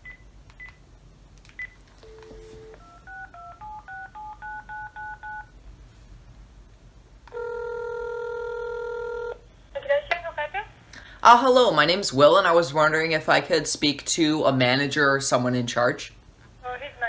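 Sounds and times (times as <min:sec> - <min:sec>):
keypad beeps: 0:01.6 - 0:05.5
dial tone: 0:02.0 - 0:05.5, 0:07.3 - 0:09.4
phone ringback tone: 0:02.0 - 0:05.5, 0:07.3 - 0:09.4.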